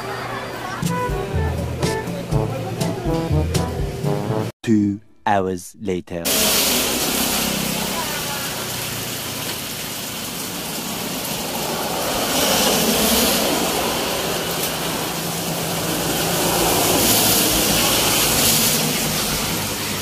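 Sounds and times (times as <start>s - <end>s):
vehicles passing by: 6.3s - 20.0s.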